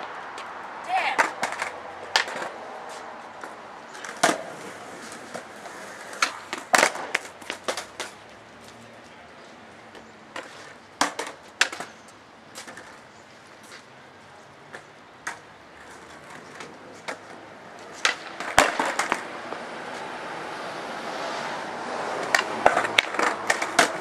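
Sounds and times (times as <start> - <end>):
skateboard decks clacking on concrete: 0.0 - 13.9, 14.5 - 20.2, 22.0 - 24.0
skateboard wheels rolling: 0.0 - 24.0.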